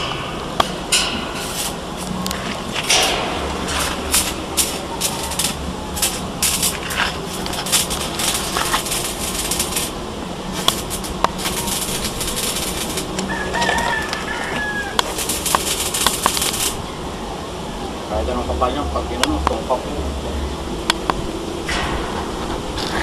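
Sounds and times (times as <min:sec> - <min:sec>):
crackling and clicking noise: 0:00.0 - 0:17.0, 0:17.7 - 0:23.0
rooster crowing: 0:11.3 - 0:18.0.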